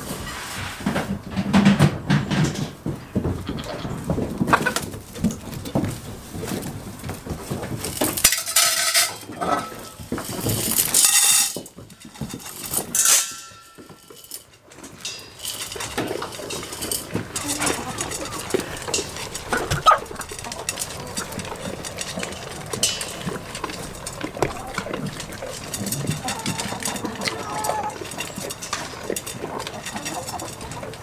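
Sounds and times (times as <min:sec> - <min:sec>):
metal cup clinking and rattling: 0:08.2 - 0:31.0
ringing metallic clanks: 0:10.9 - 0:31.0.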